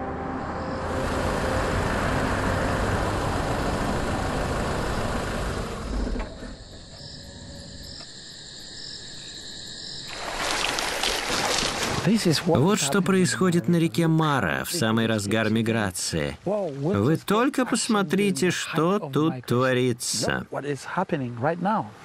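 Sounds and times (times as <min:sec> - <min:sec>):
high insect trill: 0:00.1 - 0:16.3
vehicle engine and tyre rumble: 0:00.6 - 0:07.8.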